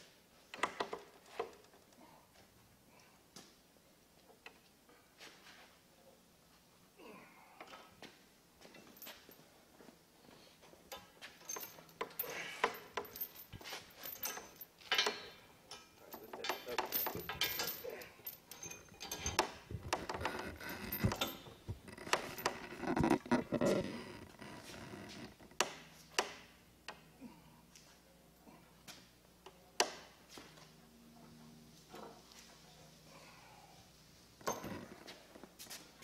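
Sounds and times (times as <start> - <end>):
chain rattling against steel: 10.6 - 25.2, 34.4 - 35.3.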